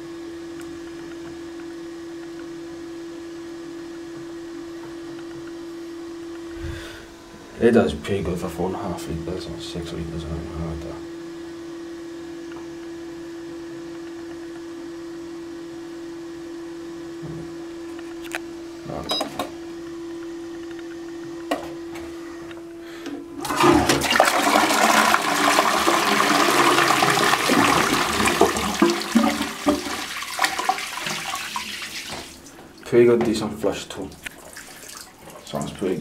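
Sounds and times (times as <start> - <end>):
steady low hum: 4.2 - 23.6
toilet flushing: 23.2 - 32.6, 33.3 - 36.0
water rushing through toilet bowl: 23.3 - 32.5, 34.1 - 36.0.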